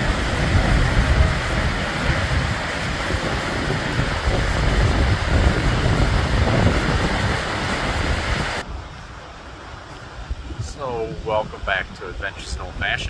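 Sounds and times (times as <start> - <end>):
waterfall roaring: 0.0 - 8.6
wind buffeting microphone: 0.0 - 13.0.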